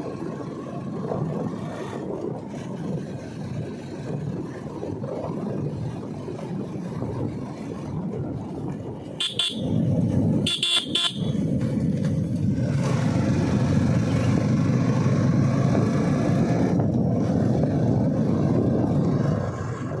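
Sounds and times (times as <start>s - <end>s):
motorcycle running: 0.0s - 20.0s
wind rushing over microphone: 0.0s - 20.0s
quick horn beeps: 9.2s - 9.8s, 10.5s - 11.4s.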